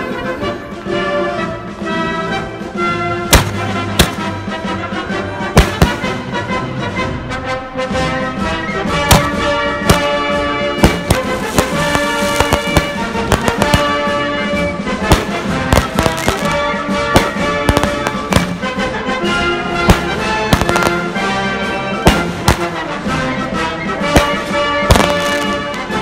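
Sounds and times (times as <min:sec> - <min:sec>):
patriotic music: 0:00.0 - 0:26.0
fireworks bangs: 0:03.3 - 0:04.7, 0:05.5 - 0:06.4, 0:09.0 - 0:23.3, 0:23.9 - 0:26.0.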